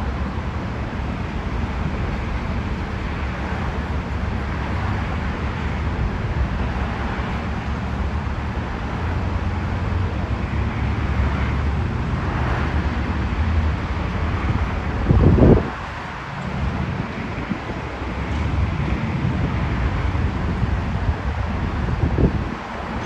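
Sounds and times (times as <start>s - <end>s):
subway train rumbling: 0.0s - 23.0s
wind buffeting microphone: 11.2s - 23.0s.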